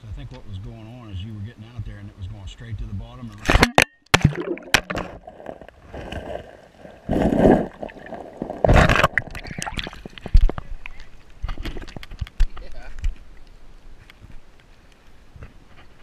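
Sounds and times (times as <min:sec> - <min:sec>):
rushes of water: 0:03.5 - 0:12.1.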